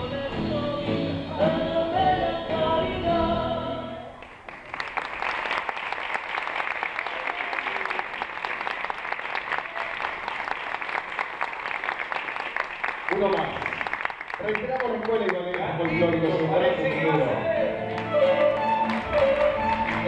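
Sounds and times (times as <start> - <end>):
folk song singing: 0.0 - 4.2
audience applause: 4.2 - 17.3, 17.9 - 20.0.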